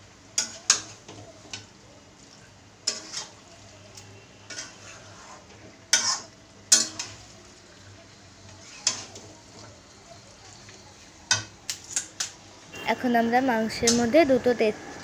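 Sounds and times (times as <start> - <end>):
oil sizzling: 0.0 - 15.0
metal spatula scraping metal pan: 2.8 - 3.4, 4.4 - 7.3, 8.6 - 9.3.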